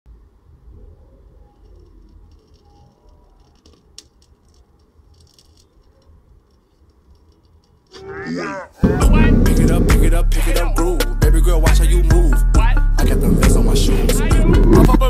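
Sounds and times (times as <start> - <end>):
rattling and scratching handling noises: 1.5 - 8.0
low rumble: 13.0 - 15.0.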